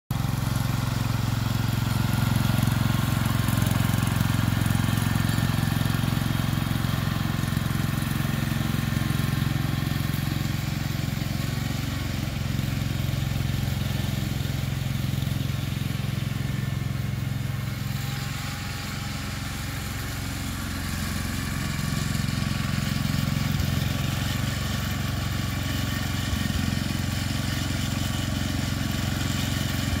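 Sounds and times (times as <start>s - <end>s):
garden tractor engine running: 0.1s - 30.0s.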